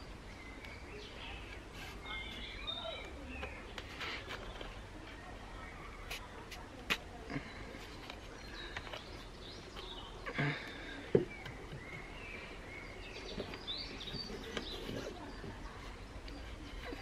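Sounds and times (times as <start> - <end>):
birds chirping and whistling: 0.0 - 4.6, 8.4 - 15.4
outdoor background: 0.0 - 17.0.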